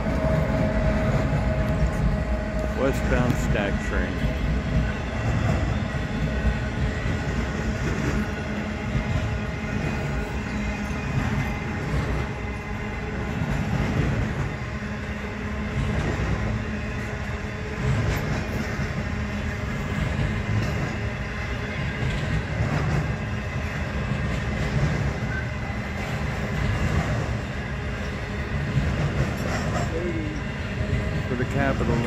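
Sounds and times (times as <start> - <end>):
freight train wheels rumbling: 0.0 - 32.0.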